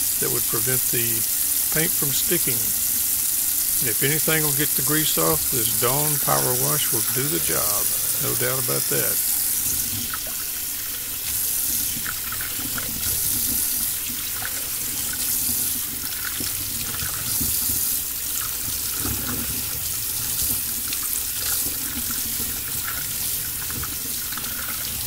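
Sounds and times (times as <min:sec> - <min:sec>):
faucet running into metal sink: 0:00.0 - 0:25.0.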